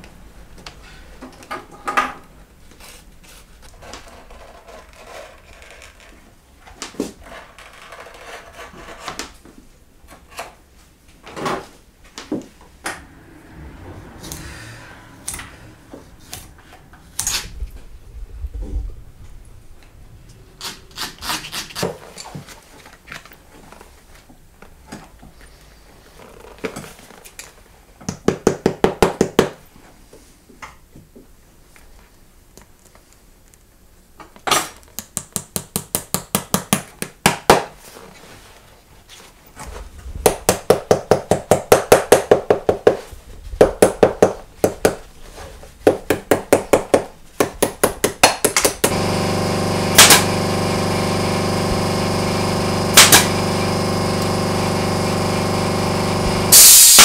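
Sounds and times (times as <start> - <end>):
power tool humming: 48.8 - 57.0.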